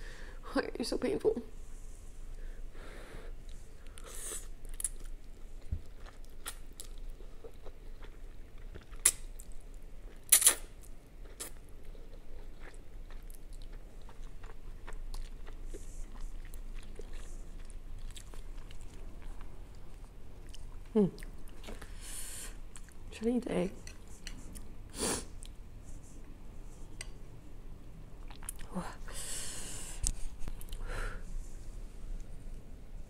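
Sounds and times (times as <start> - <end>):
person slurping and chewing noodles: 3.9 - 23.0
wet mouth clicks: 10.3 - 10.7.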